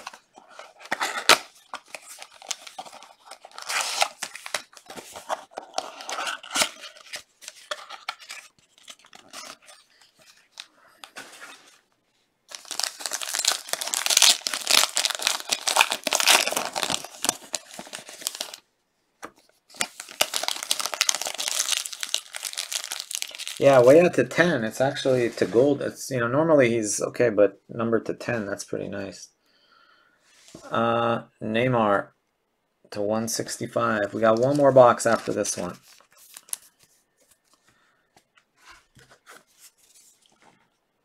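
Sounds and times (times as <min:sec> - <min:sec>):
foil pack crinkling: 0:00.0 - 0:11.2, 0:12.5 - 0:18.6, 0:19.8 - 0:23.9.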